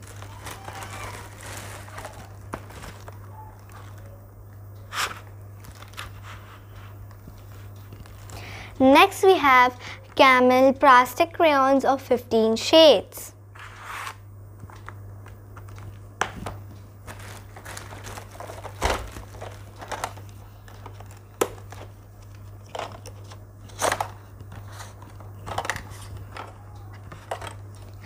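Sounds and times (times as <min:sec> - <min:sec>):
plastic packaging rustling: 0:00.0 - 0:04.2, 0:05.0 - 0:06.5, 0:15.6 - 0:28.0.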